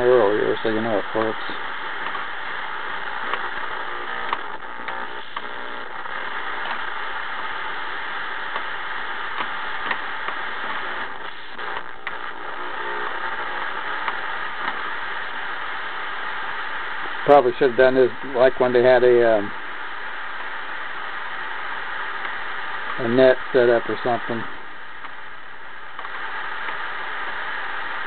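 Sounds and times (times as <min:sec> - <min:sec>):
faint radio tones: 0:00.0 - 0:28.0
radio static hiss: 0:00.0 - 0:28.0
small clicks: 0:09.3 - 0:10.4.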